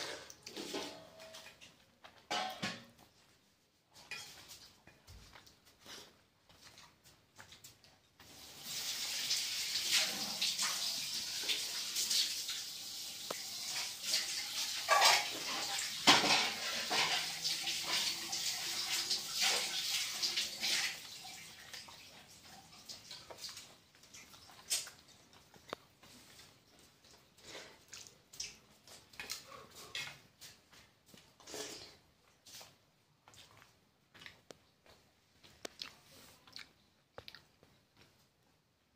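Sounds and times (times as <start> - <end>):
water running: 8.2 - 29.4.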